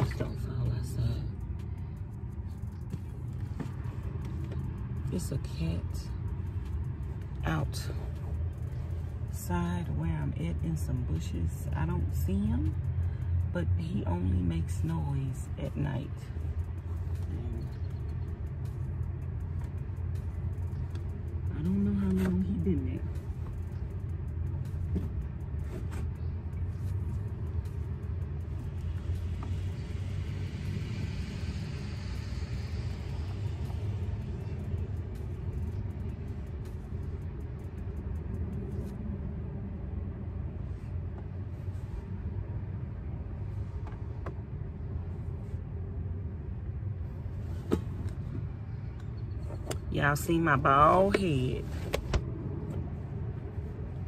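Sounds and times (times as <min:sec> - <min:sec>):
road traffic rumble: 0:00.0 - 0:54.0
car passing: 0:10.3 - 0:45.6.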